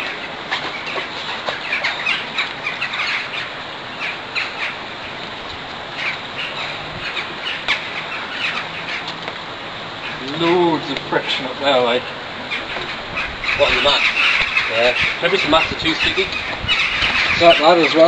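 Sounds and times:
outdoor background hiss: 0.0s - 18.0s
small birds chirping: 0.0s - 18.0s.

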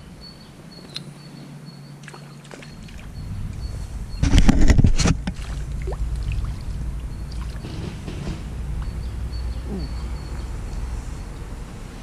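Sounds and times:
low rumble: 3.1s - 11.2s
fish splashing in water: 5.2s - 7.6s.

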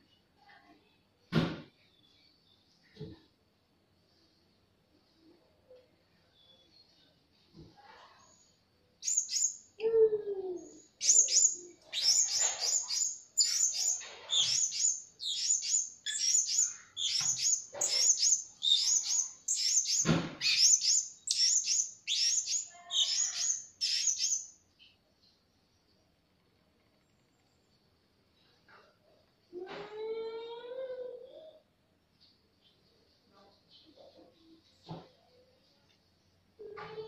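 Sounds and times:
parrots chirping: 9.0s - 9.7s, 10.8s - 24.6s.

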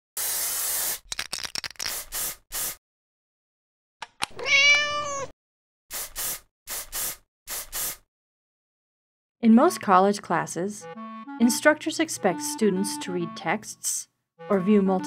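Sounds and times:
cat meowing: 4.3s - 5.3s.

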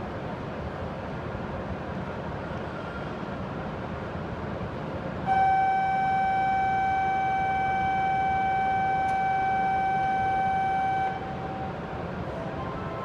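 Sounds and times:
low station hum: 4.8s - 13.0s
electronic departure bell tone: 5.3s - 11.9s.

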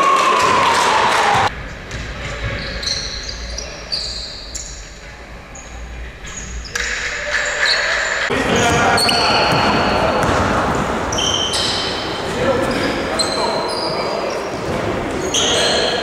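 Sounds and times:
sneakers squeaking on hardwood: 1.9s - 5.0s, 5.6s - 16.0s
ball bouncing: 8.6s - 11.7s.

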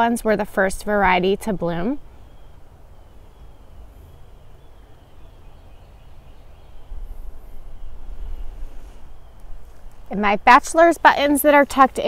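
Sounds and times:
faint distant birdsong: 0.0s - 12.0s
wind rumble on microphone: 0.0s - 12.0s.

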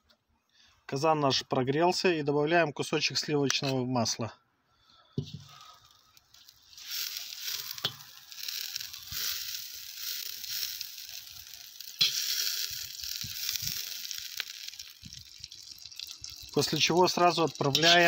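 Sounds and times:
butter sizzling in a pot: 5.2s - 18.0s.

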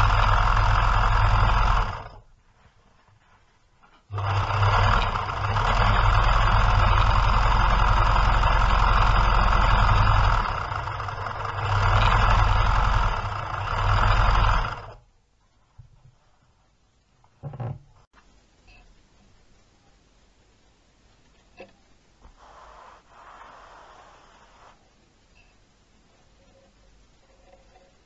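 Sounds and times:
electric sewing machine stitching: 0.0s - 2.3s, 4.1s - 15.0s.

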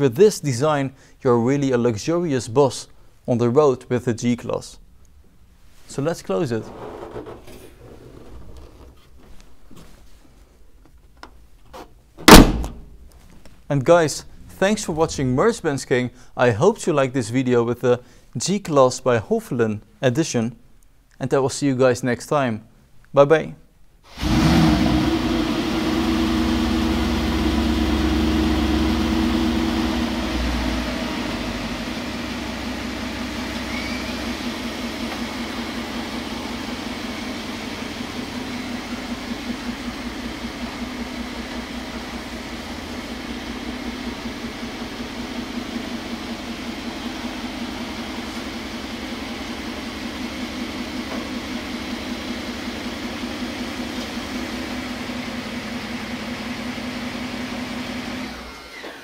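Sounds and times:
car engine starting and idling: 12.2s - 13.2s, 24.1s - 59.0s.

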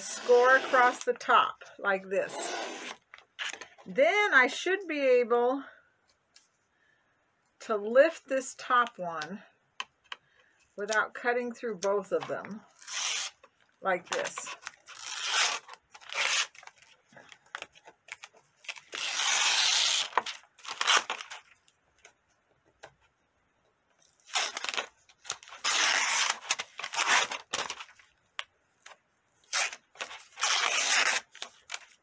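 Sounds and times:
paper liner being ripped: 0.0s - 1.1s, 12.8s - 13.4s, 14.9s - 16.6s, 18.8s - 21.4s, 25.5s - 27.7s, 29.5s - 31.8s.

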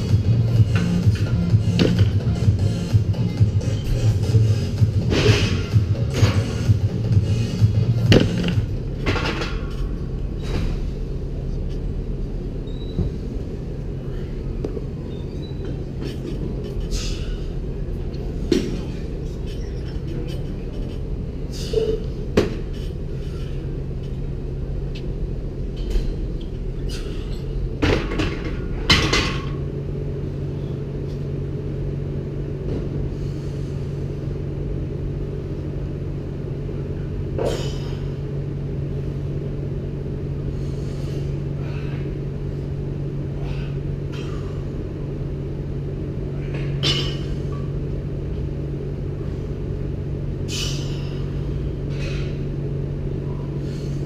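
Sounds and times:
low hum of weight room: 0.0s - 54.0s
person breathing: 40.5s - 42.3s, 43.3s - 44.7s.

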